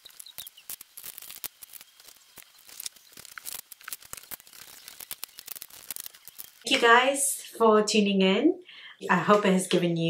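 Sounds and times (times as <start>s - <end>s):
plastic items clicking: 0.0s - 6.7s.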